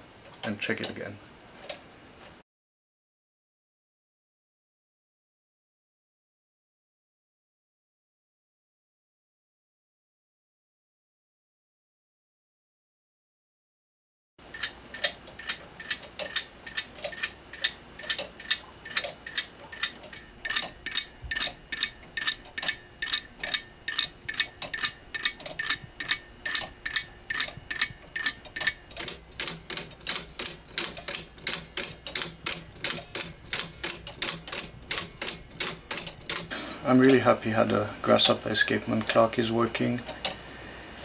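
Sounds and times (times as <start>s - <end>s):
pendulum clock ticking: 14.4s - 37.3s.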